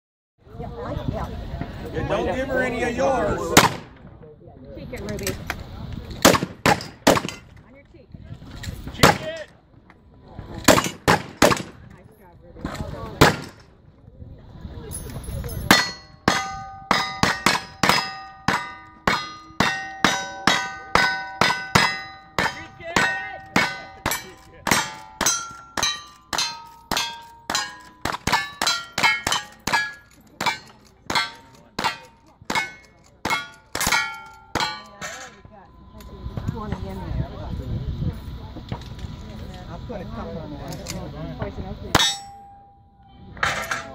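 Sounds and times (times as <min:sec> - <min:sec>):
steel plate clanging: 0:15.0 - 0:36.1, 0:41.9 - 0:42.8, 0:43.4 - 0:43.9.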